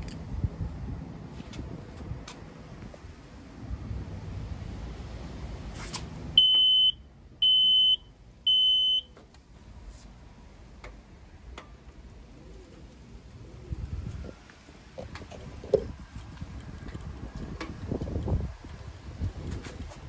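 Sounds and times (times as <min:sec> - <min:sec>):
high-pitched warning beeps: 0:06.4 - 0:09.1.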